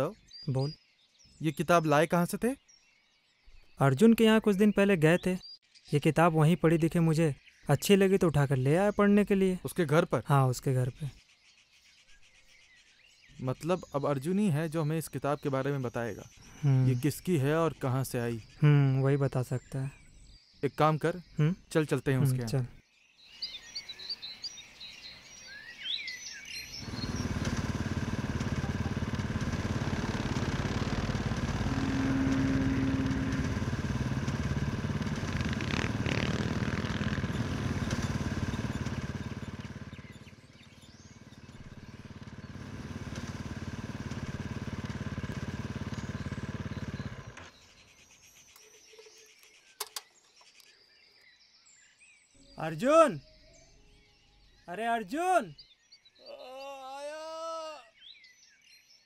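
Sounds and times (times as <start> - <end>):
birds chirping: 0.0 - 59.0
motorcycle engine running: 26.6 - 47.6
road and wind noise: 26.8 - 40.0.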